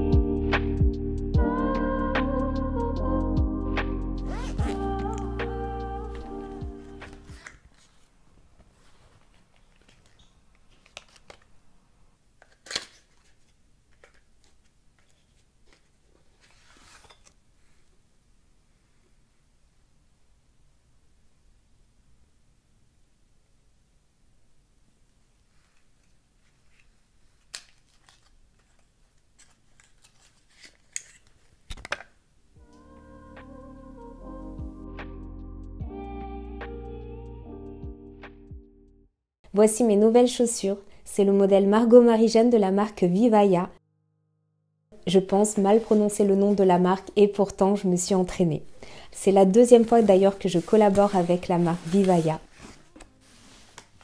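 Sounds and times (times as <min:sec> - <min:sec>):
background music: 0:00.0 - 0:07.4, 0:32.6 - 0:39.1.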